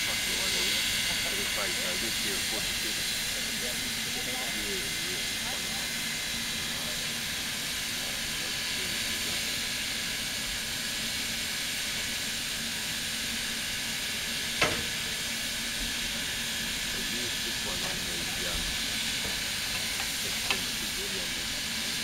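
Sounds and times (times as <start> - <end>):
steam locomotive hissing: 0.0 - 22.0
sharp knock: 14.6 - 14.9.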